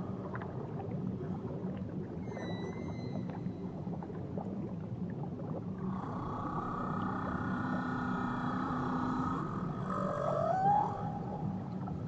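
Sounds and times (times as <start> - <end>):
whale call: 2.2 - 3.5, 5.9 - 12.0.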